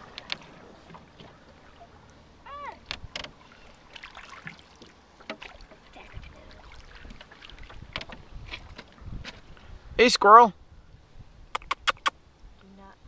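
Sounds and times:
knocks and clicks against boat: 0.0 - 1.7, 2.7 - 3.5, 4.4 - 9.5
water lapping at hull: 0.0 - 9.7.

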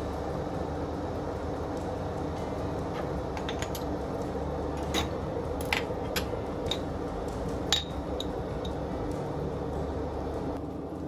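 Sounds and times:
steady low hum: 0.0 - 11.0
dishes and glassware clinking: 7.7 - 8.0.

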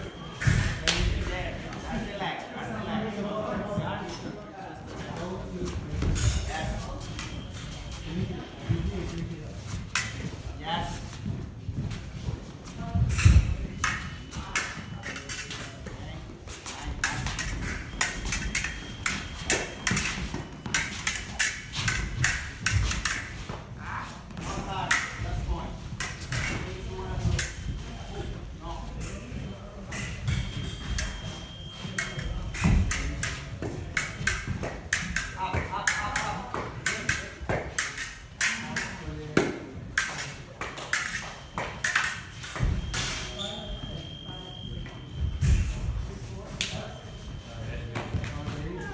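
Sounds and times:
fencing blades clashing: 9.8 - 10.4, 13.1 - 23.6, 24.4 - 27.7, 29.9 - 43.4.

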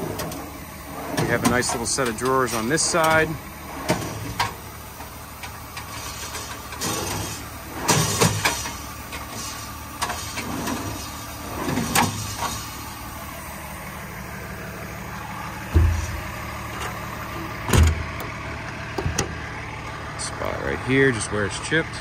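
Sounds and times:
metal drawers sliding shut: 0.0 - 13.0, 15.4 - 18.3
low engine hum: 0.0 - 22.0
compartment door thumping shut: 17.7 - 18.1.

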